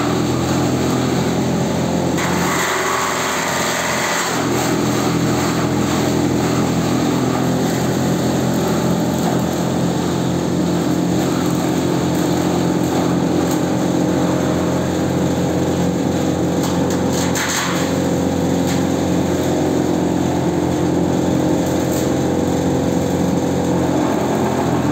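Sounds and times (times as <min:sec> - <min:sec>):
shredder humming: 0:00.0 - 0:24.9
fronds being chopped: 0:02.2 - 0:07.3.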